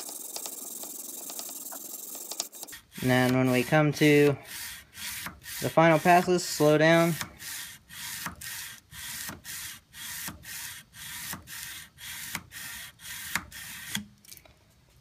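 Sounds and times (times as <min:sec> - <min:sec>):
sandpaper rubbing on steel blade: 0:00.0 - 0:14.0.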